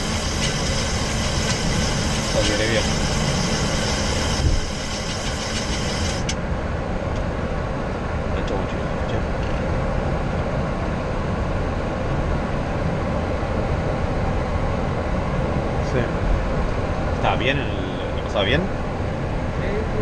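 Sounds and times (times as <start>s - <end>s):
high hiss: 0.0s - 6.3s
idling jet engines and tyres rumbling: 0.0s - 20.0s.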